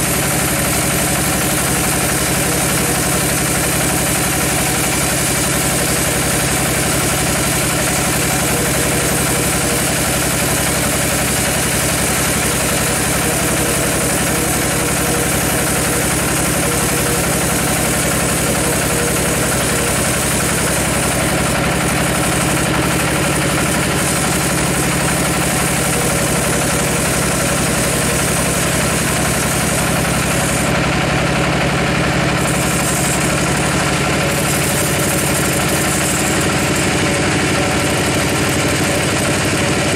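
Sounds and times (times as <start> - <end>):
band sawmill sawing wood: 0.0 - 39.9.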